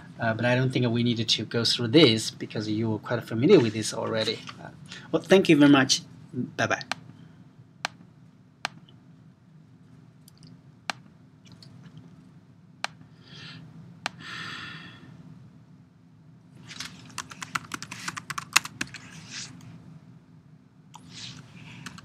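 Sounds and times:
low steady hum: 0.0s - 22.0s
computer keyboard typing: 16.8s - 19.0s, 21.8s - 22.0s.

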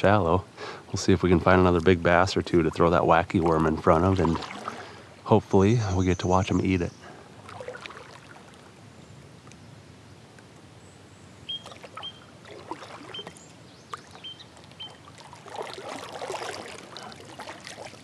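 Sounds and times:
kayak paddle dipping and dripping: 1.3s - 5.3s, 6.6s - 9.7s, 11.4s - 18.0s
paddle swishing stroke: 4.2s - 4.9s, 11.7s - 13.4s, 15.2s - 18.0s.

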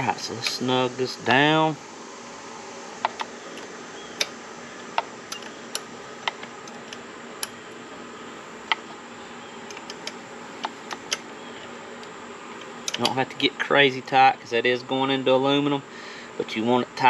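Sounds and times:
ratchet clicking: 9.7s - 11.3s, 12.0s - 13.2s.

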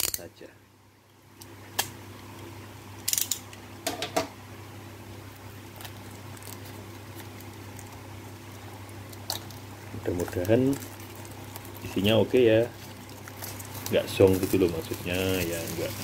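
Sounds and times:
steady low hum: 0.0s - 16.0s
plastic wrap crinkling and tearing: 5.3s - 16.0s.

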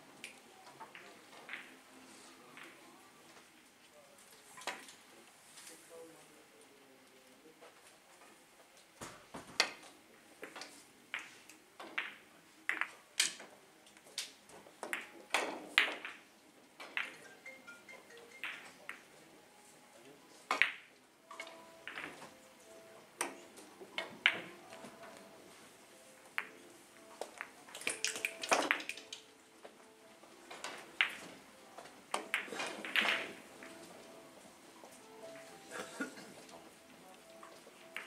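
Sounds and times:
faint murmur of voices: 0.0s - 38.0s
billiard balls clicking: 10.4s - 13.4s, 20.5s - 22.3s, 26.3s - 26.6s, 27.2s - 29.3s, 30.5s - 34.0s, 37.1s - 38.0s.

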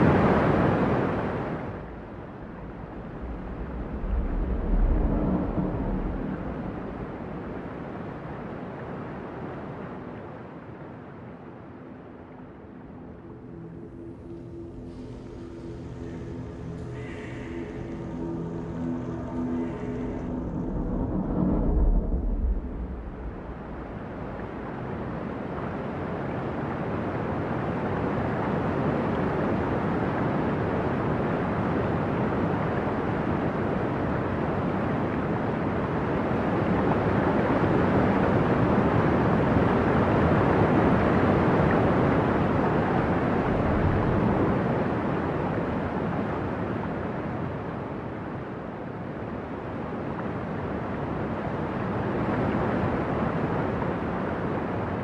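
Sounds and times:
music: 1.5s - 55.0s
low rumble: 1.7s - 8.6s, 12.8s - 25.3s, 42.4s - 44.8s.

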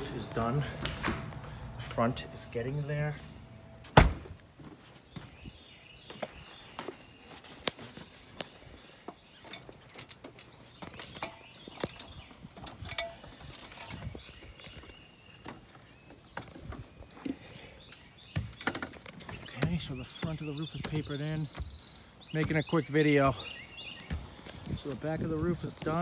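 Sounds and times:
footsteps climbing onto a roof: 23.9s - 26.0s.

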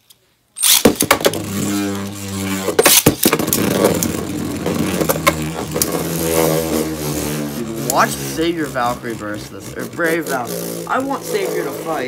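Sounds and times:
tops clacking together: 0.6s - 1.5s
spinning tops whirring: 0.6s - 12.0s.

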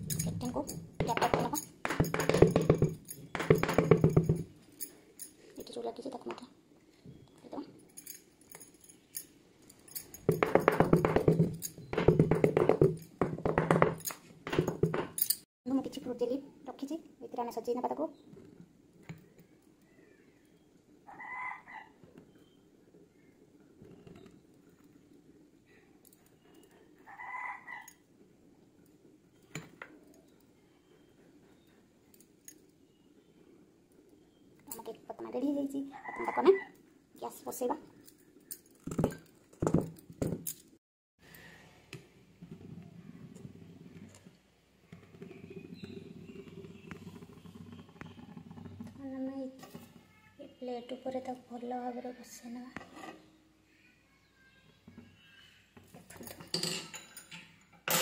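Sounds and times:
metal clicks and knocks: 0.0s - 5.3s
faint low background noise: 0.0s - 58.0s
animal call: 21.1s - 22.0s, 27.0s - 28.0s.

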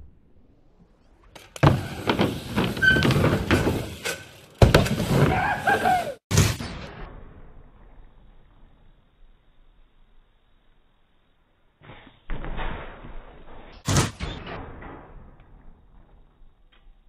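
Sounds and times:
bike tyres rumbling on wooden boards: 1.4s - 6.2s
knocks and thuds on ramp: 4.6s - 5.4s.

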